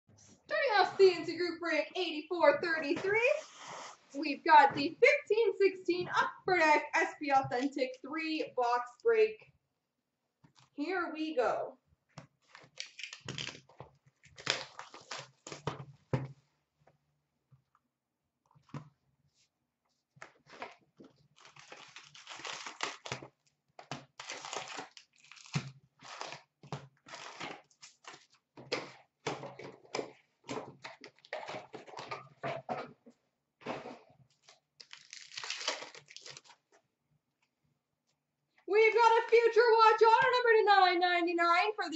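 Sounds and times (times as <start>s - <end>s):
cardboard tear strip ripping: 12.5s - 15.7s, 21.4s - 23.3s, 23.9s - 26.5s, 34.8s - 36.6s
paper and packs rustling: 33.6s - 36.8s.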